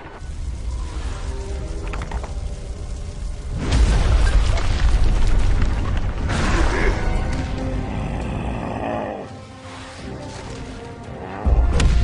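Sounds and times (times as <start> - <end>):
character growling: 7.8 - 9.4.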